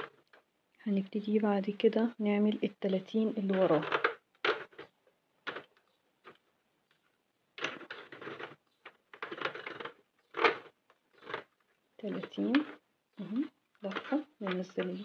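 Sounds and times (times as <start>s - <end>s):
knitting needles clicking: 3.4s - 15.0s
yarn rubbing on plastic: 3.4s - 15.0s.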